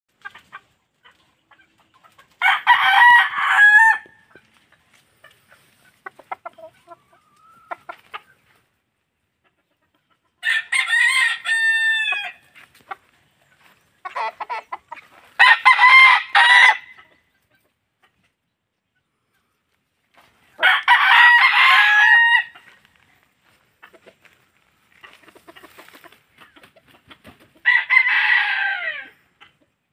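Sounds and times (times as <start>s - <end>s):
rooster crowing: 2.4s - 4.2s, 10.4s - 12.4s, 15.4s - 17.0s, 20.6s - 22.6s, 27.6s - 29.1s.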